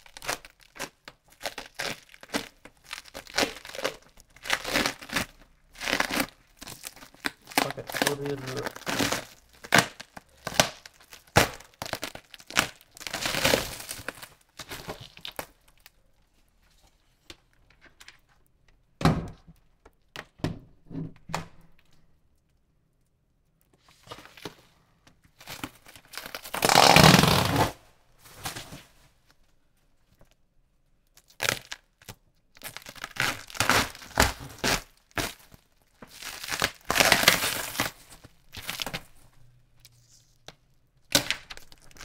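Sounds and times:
plastic wrap tearing and crinkling: 0.0 - 16.0, 25.3 - 29.0, 31.1 - 42.0.

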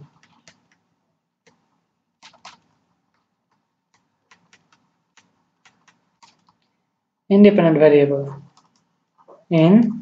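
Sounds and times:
stylus tapping on pen tablet: 3.2 - 6.6.

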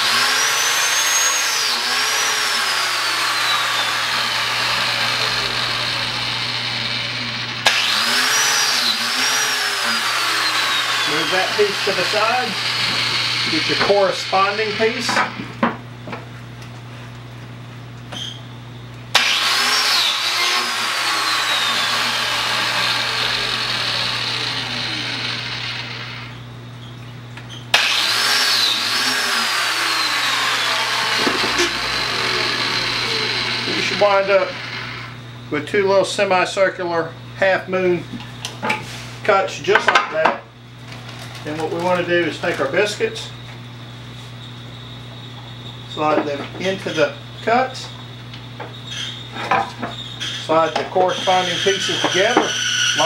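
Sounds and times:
blade cutting wood: 0.0 - 15.5, 19.1 - 26.4, 27.7 - 35.2, 50.2 - 53.0
biscuit joiner motor whine: 0.0 - 16.1, 19.1 - 26.7, 27.6 - 35.5, 44.6 - 53.0.

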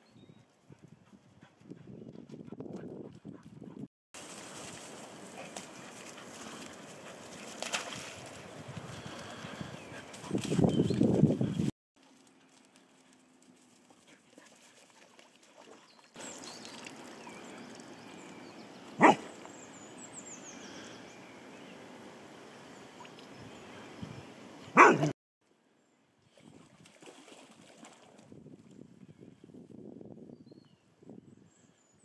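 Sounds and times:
dog barking: 19.0 - 19.3, 24.7 - 25.2.

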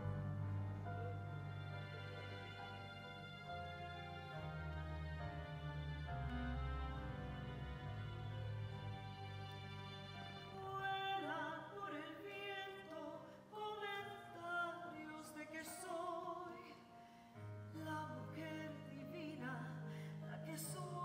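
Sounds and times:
low bass line: 0.0 - 9.6
instrumental accompaniment: 0.0 - 10.8
woman singing operatically: 10.6 - 16.7.

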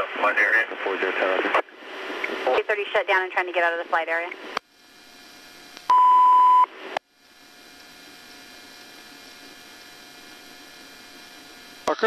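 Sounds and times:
open-channel radio hiss: 0.0 - 5.0, 8.8 - 12.0
loud high radio beep: 5.9 - 6.7.

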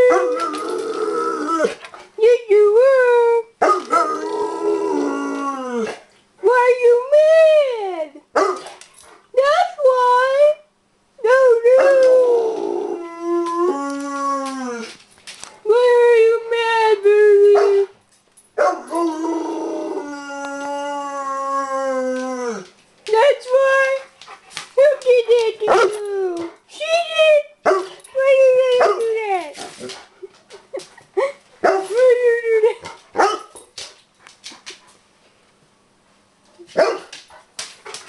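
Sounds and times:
dog howling: 0.0 - 1.8, 3.7 - 6.0, 11.8 - 15.0, 18.7 - 22.7
dog barking: 3.6 - 4.0, 8.4 - 8.7, 27.6 - 28.0, 33.2 - 33.5, 36.8 - 37.1.

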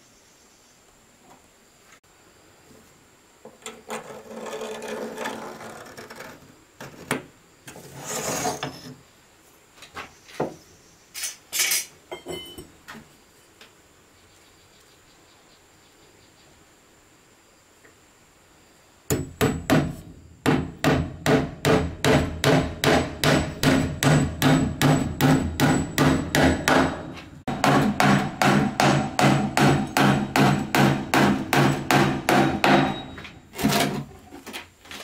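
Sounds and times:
wood scraping and rubbing: 3.7 - 9.0
sharp wooden knocks and clacks: 19.1 - 33.0.

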